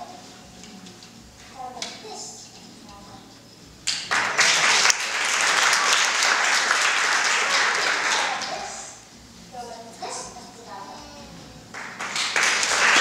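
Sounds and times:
audience applauding: 3.9 - 9.0, 11.7 - 13.0.

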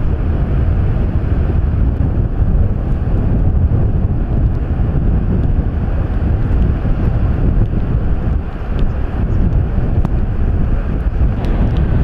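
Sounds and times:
ocean surf breaking: 0.0 - 12.0
wind buffeting microphone: 0.0 - 12.0.

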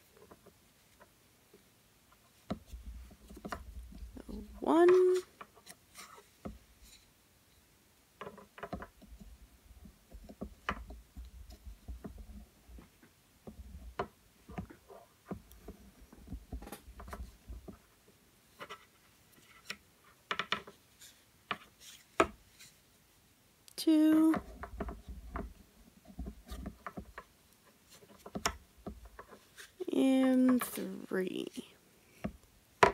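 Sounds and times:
yarn rubbing: 2.2 - 7.0.

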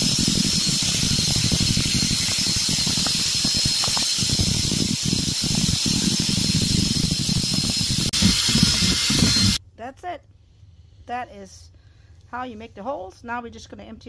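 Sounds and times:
cordless drill boring through plastic: 0.0 - 9.6.

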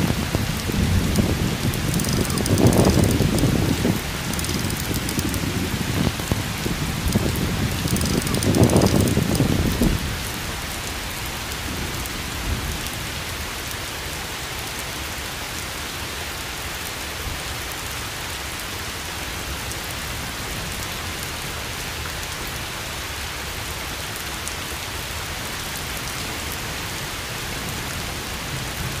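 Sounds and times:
microphone handling rumble: 0.0 - 10.1.

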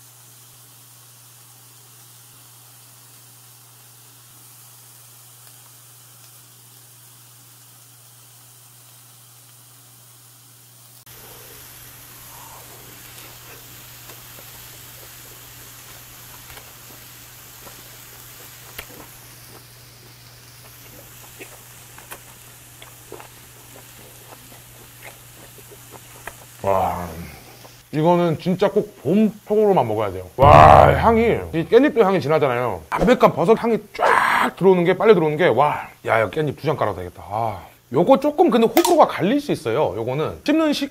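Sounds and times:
steady hiss with low hum: 0.0 - 40.9
close-up chewing: 12.1 - 27.8.

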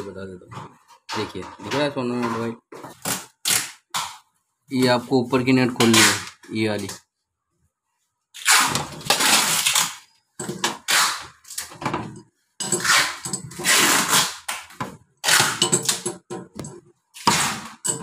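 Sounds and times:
wrench scraping and clattering on metal: 12.0 - 13.7, 17.8 - 18.0.

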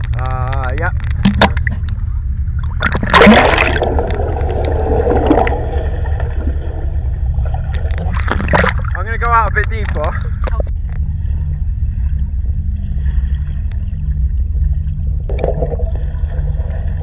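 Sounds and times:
low rumble of water: 0.0 - 17.0
muffled underwater gurgling: 0.0 - 17.0
water splashing: 1.1 - 10.7, 15.3 - 17.0.

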